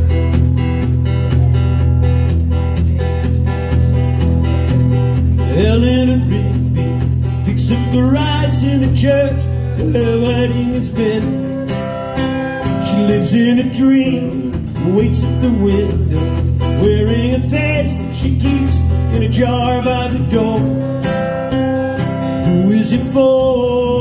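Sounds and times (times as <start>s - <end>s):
small band playing: 0.0s - 24.0s
flute melody: 11.2s - 13.7s, 20.6s - 22.6s.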